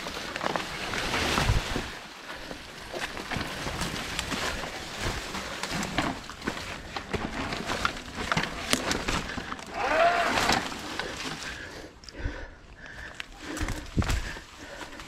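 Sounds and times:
grass brushing against bike: 0.0s - 12.0s
mountain bike rattling: 0.0s - 15.0s
tyres crunching over stones: 0.0s - 15.0s.

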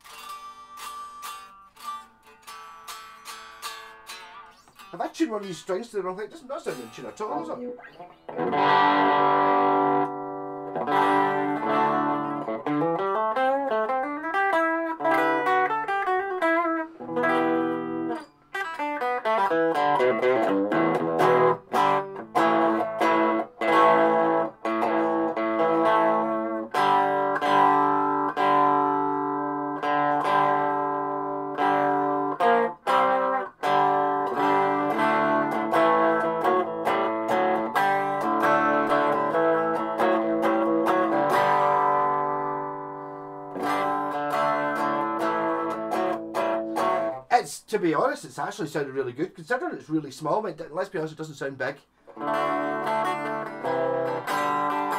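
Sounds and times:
electric guitar strummed and picked: 0.0s - 49.1s, 51.9s - 54.9s.

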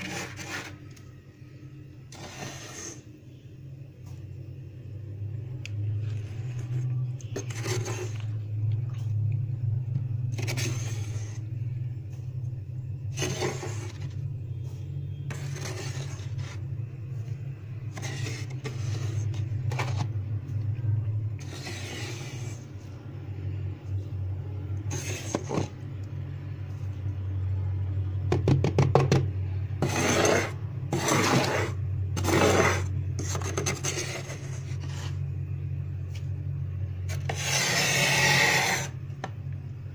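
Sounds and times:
frost being scraped: 0.0s - 0.9s, 2.1s - 3.1s, 7.3s - 8.4s, 10.3s - 11.6s, 13.1s - 14.2s, 15.2s - 16.8s, 17.8s - 20.2s, 21.4s - 22.9s, 24.9s - 25.7s, 29.8s - 35.3s, 37.1s - 39.0s
steady low hum: 0.0s - 39.9s.

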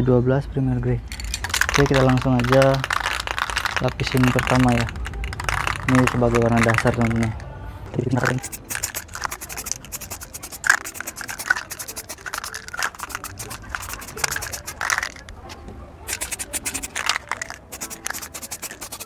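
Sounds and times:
aerosol spray paint hissing: 8.2s - 15.2s, 16.1s - 19.0s.

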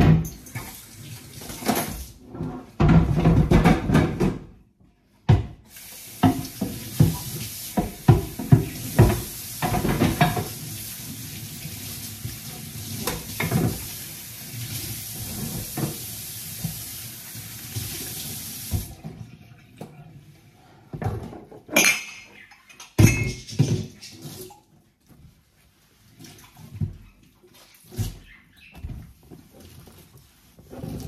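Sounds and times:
dishes knocking and clattering: 1.6s - 4.6s, 6.2s - 10.6s, 20.9s - 24.1s
tap running into steel sink: 6.2s - 10.6s.

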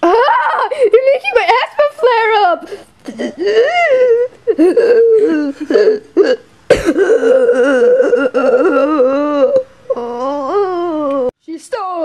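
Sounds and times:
child wailing: 0.0s - 0.8s, 3.3s - 11.3s
child's broken vocal noises: 2.5s - 11.4s
child coughing: 3.1s - 3.5s, 5.6s - 9.0s.

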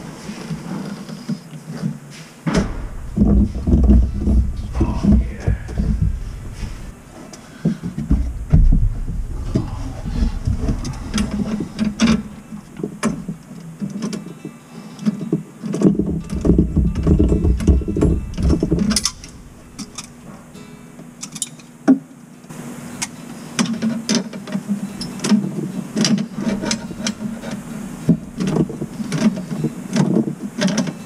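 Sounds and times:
thumps and rubbing in cabinet: 0.4s - 7.0s, 7.7s - 13.4s, 15.8s - 20.4s, 25.4s - 30.8s
pliers clanking against metal nut: 21.2s - 21.7s.

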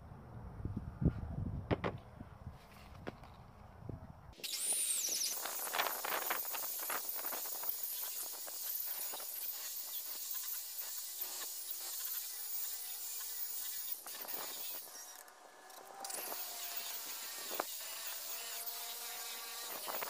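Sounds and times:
rotary polisher whining: 4.4s - 20.0s.

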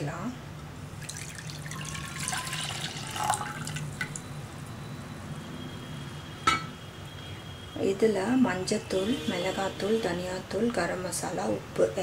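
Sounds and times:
milk pouring into a pan: 1.0s - 3.9s.

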